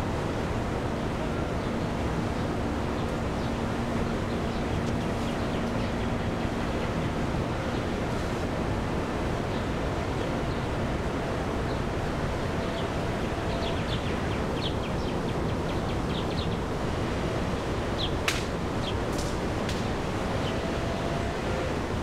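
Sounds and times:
birds chirping: 1.6 - 8.0, 12.6 - 16.8, 17.5 - 18.2
sharp click: 18.3 - 18.5.

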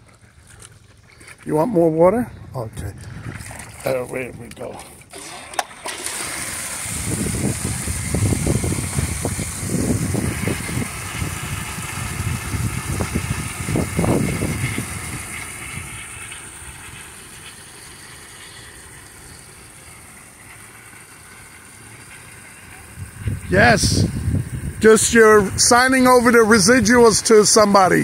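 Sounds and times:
water gushing into plastic pool: 0.0 - 28.0
low rumbling on microphone: 1.8 - 5.0, 6.8 - 17.1, 22.8 - 27.2.

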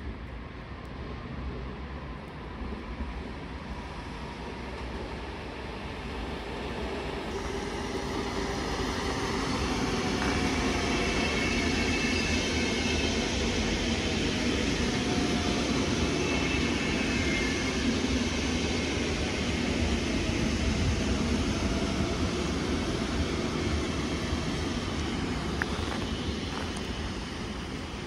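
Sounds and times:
electric train rumble and rail noise: 0.0 - 28.0
faint high whining tones: 3.8 - 28.0.

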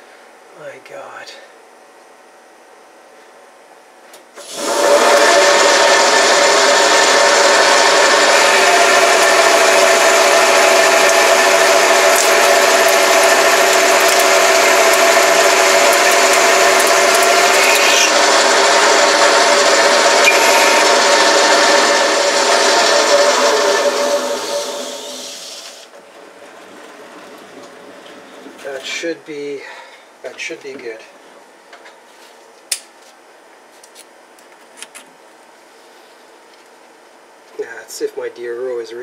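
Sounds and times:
steady machine whine: 4.4 - 29.6
metal lathe machining: 4.5 - 25.8.

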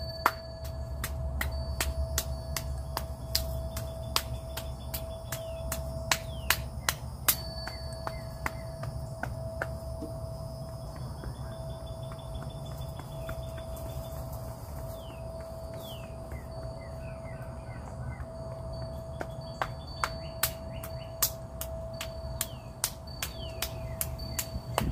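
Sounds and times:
hand slapping on arms: 0.2 - 10.2, 19.2 - 24.9
insect hum: 2.2 - 24.8.

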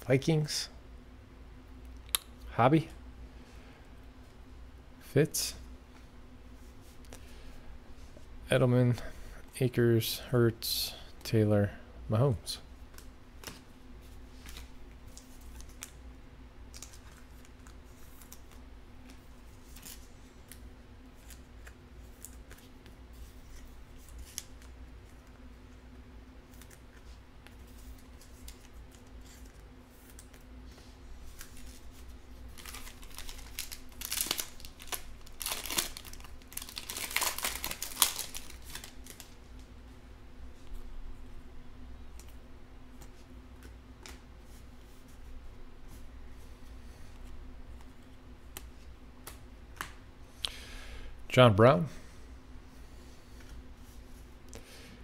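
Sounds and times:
cards shuffling and clicking: 21.2 - 25.4
foil wrapper tearing and crinkling: 32.5 - 39.4.

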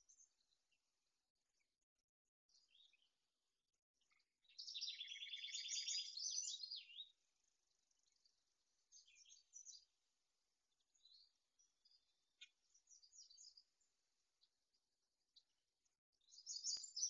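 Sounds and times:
songbird trilling: 4.5 - 7.1.

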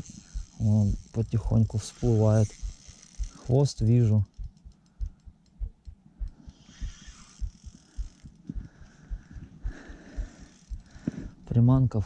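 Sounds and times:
fishing reel winding: 0.0 - 5.6, 6.3 - 8.5, 10.2 - 11.0.

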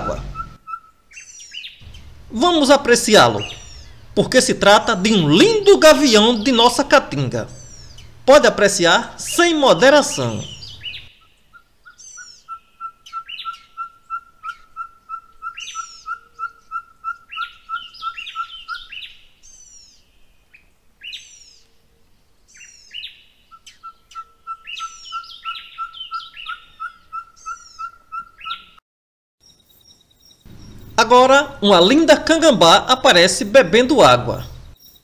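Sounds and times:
high falling bird chirps: 0.0 - 21.7, 22.4 - 28.8, 29.4 - 35.0
bird repeating clear note: 1.8 - 4.2, 9.2 - 11.1.

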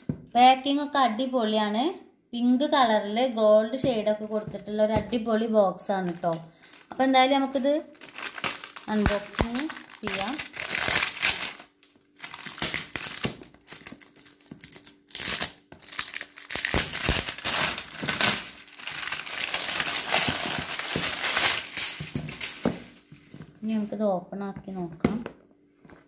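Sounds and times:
plastic shrink-wrap crinkling and tearing: 5.8 - 23.1.

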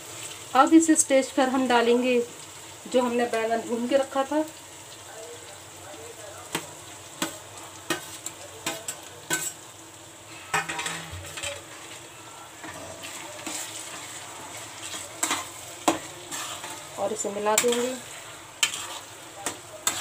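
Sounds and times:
masala sizzling in a pan: 0.0 - 20.0
food scraped and stirred: 6.5 - 9.6, 10.3 - 20.0.

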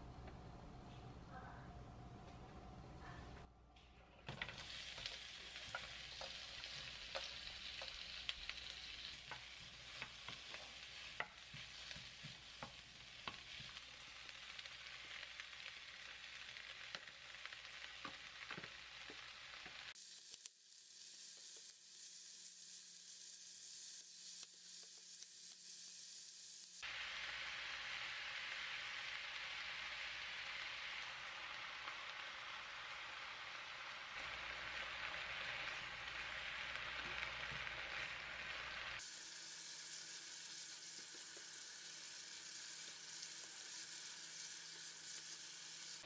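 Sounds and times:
food sizzling in hot oil: 3.9 - 46.0
wooden spatula tapping and scraping: 4.3 - 13.9, 17.9 - 19.8.

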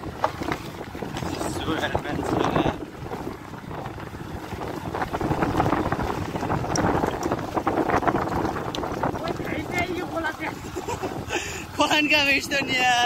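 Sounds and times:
motorcycle running at low speed: 0.0 - 10.1
wind buffeting microphone: 0.0 - 13.0.

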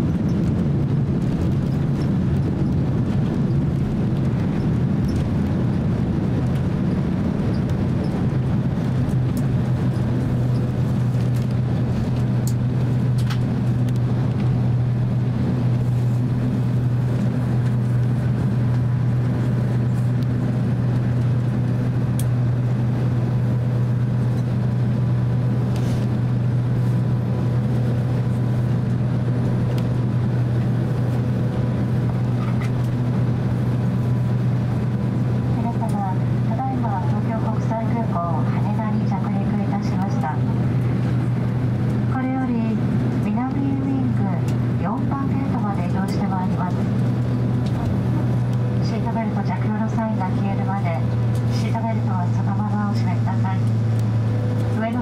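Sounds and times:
jet engines running low: 0.0 - 55.0.

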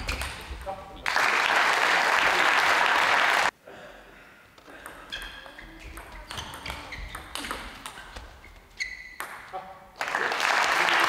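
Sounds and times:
applause: 1.0 - 3.5, 10.0 - 11.0.

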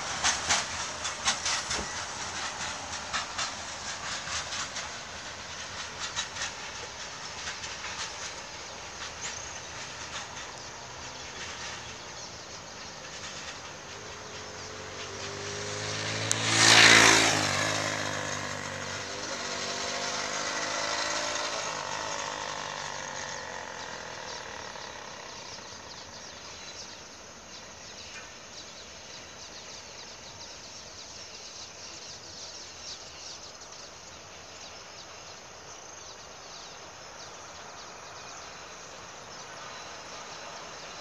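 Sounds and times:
small engine: 0.0 - 27.1
crickets chirping: 16.5 - 41.0.

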